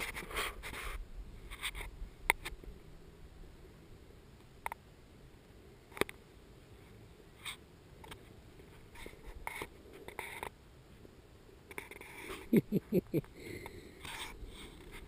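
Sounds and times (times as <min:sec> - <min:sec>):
rubbing and scratching: 0:00.0 - 0:02.0, 0:07.4 - 0:10.5, 0:11.7 - 0:12.6, 0:14.0 - 0:15.0.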